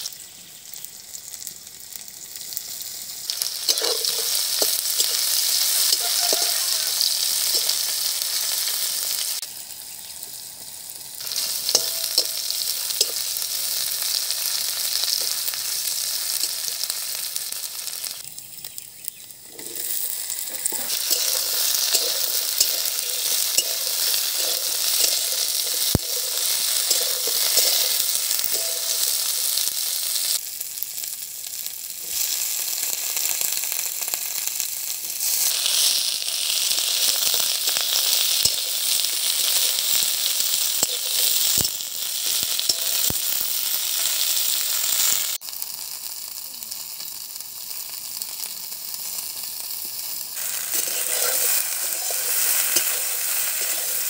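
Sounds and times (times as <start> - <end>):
vegetables sizzling in hot oil: 0.0 - 54.0
metal spatula scraping: 3.6 - 8.7, 11.3 - 13.3, 19.5 - 29.6, 50.4 - 54.0.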